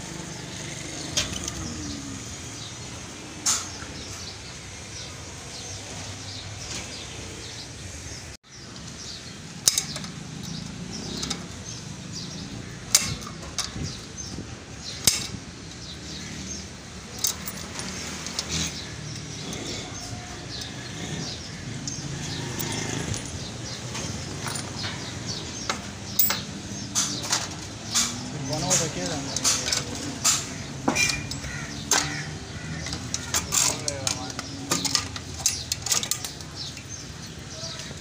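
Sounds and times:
steady background noise: 0.0s - 38.0s
hand tools clinking on metal: 9.6s - 14.2s, 14.8s - 38.0s.

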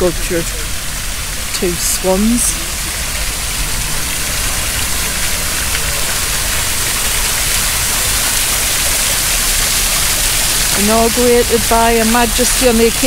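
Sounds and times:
fountain water splashing: 0.0s - 13.0s.

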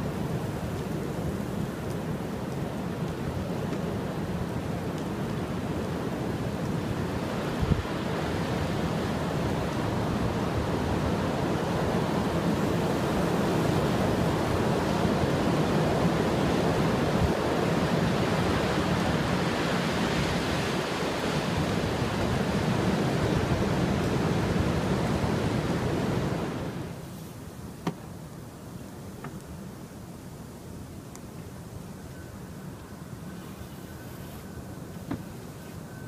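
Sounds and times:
blizzard wind rushing: 0.0s - 27.0s
wind buffeting microphone: 0.4s - 26.8s.

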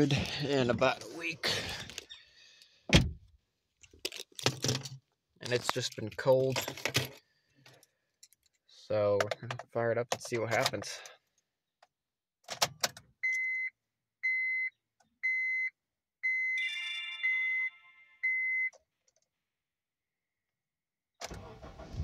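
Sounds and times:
starter cranking engine: 21.3s - 22.0s.

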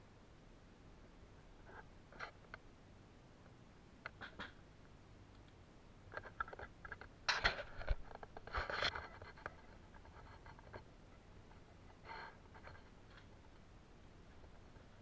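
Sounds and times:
handling clicks and scrapes: 6.1s - 10.9s
rustling scrapes: 7.5s - 13.6s.

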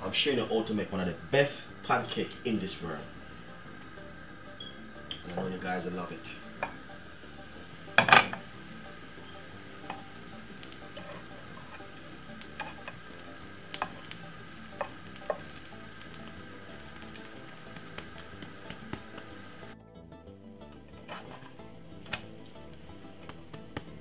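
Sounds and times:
pancake sizzling in oil: 0.6s - 19.8s, 20.9s - 24.0s
oil popping and crackling: 4.8s - 19.8s, 20.8s - 24.0s.

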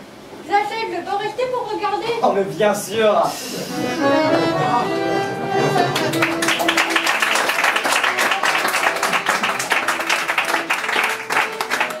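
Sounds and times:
quiet musical accompaniment: 3.7s - 12.0s
audience applauding: 5.9s - 12.0s.

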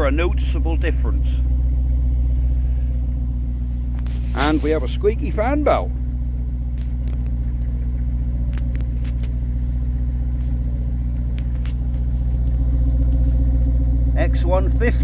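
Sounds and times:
car engine idling: 0.0s - 15.0s
squeaky fan belt chirping: 5.4s - 14.2s.

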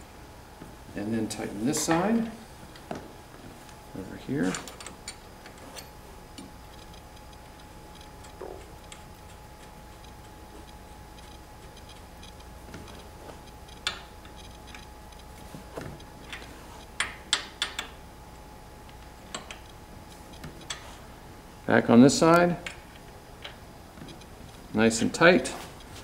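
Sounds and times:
wrench clicking on nuts: 17.0s - 18.0s.

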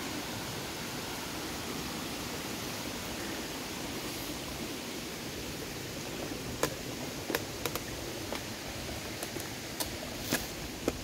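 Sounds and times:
steady rushing hiss: 0.0s - 11.0s
footsteps on creek bed: 3.9s - 11.0s.

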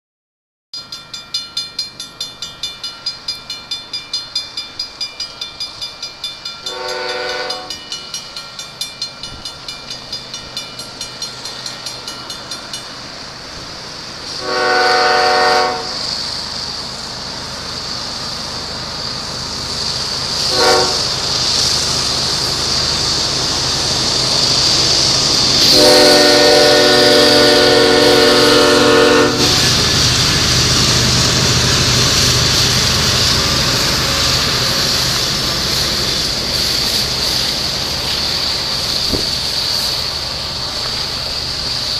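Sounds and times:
railroad crossing bell ringing: 0.8s - 13.8s
train rumble and hiss: 0.9s - 41.9s
train horn blasts: 6.6s - 7.8s, 14.3s - 16.0s, 20.4s - 21.2s, 25.6s - 29.9s.

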